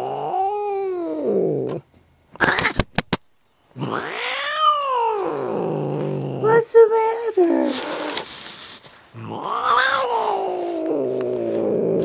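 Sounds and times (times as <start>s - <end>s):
cat yowling: 0.0s - 1.8s, 3.8s - 6.6s, 9.2s - 12.0s.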